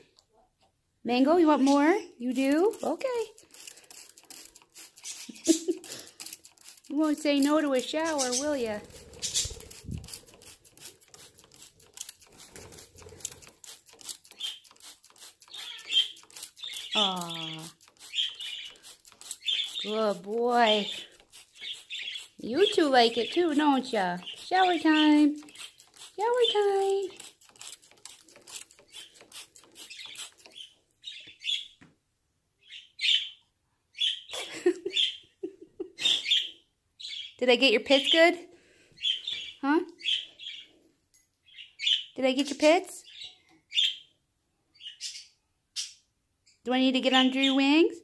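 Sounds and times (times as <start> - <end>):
small birds chirping: 1.1 - 31.9, 32.6 - 48.0
spray bottle squirts: 3.4 - 6.9, 8.2 - 19.9, 20.6 - 22.8, 24.2 - 30.7
bird flapping wings: 8.3 - 15.0.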